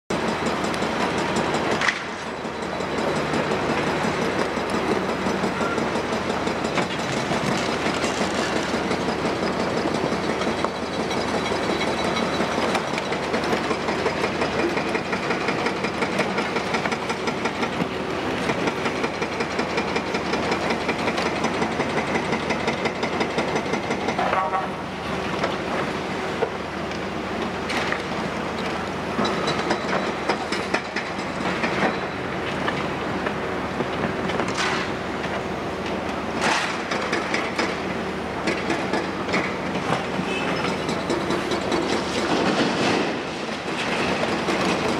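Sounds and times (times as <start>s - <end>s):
excavator diesel engine under load: 0.1s - 44.9s
short squeal: 40.2s - 40.8s
concrete rubble clattering into truck: 41.8s - 44.9s.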